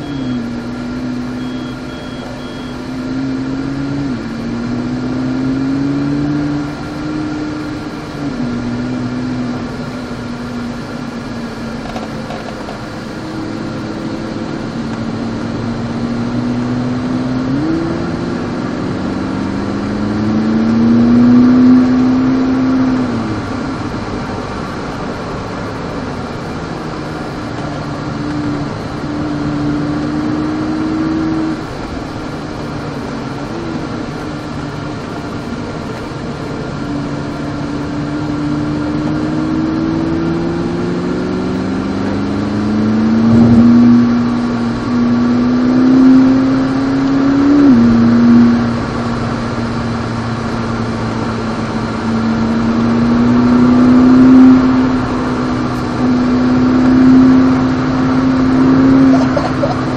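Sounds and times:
sports car engine revving: 0.0 - 59.9.

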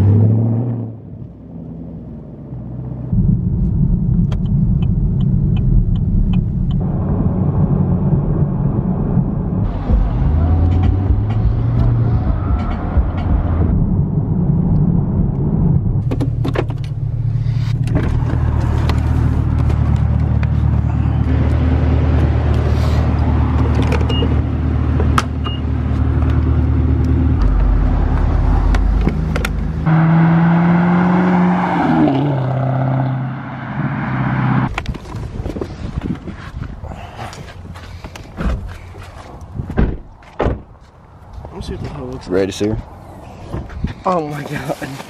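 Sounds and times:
car engine hum from cabin: 0.0 - 31.4.

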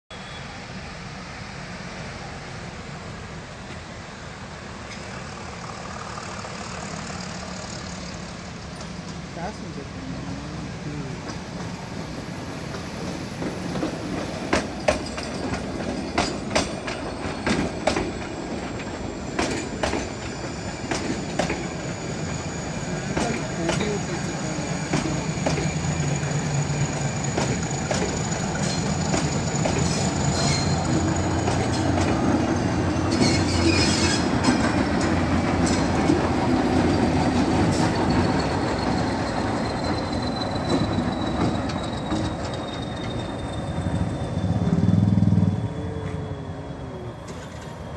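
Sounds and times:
diesel locomotive engine rumble: 0.1 - 47.9
high wheel squeal: 4.6 - 9.5, 16.7 - 47.9
train wheels clicking over rail joints: 11.2 - 45.4.

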